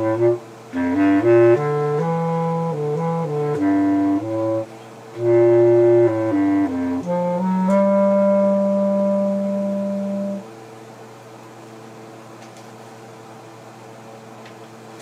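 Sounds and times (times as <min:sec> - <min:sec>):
clarinet low note: 0:00.0 - 0:10.5
low room hum: 0:00.0 - 0:15.0.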